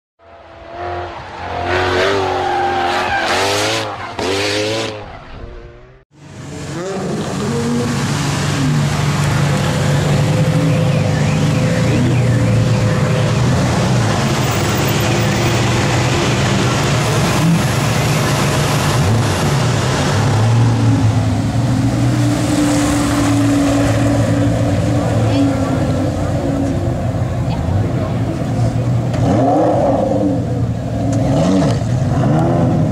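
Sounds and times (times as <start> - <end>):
sports car engine revving: 16.5 - 32.9.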